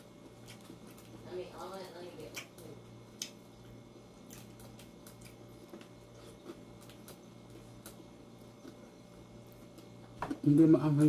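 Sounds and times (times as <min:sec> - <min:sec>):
low steady hum: 0:00.0 - 0:11.0
man chewing and lip smacks: 0:00.2 - 0:01.2, 0:02.3 - 0:10.4.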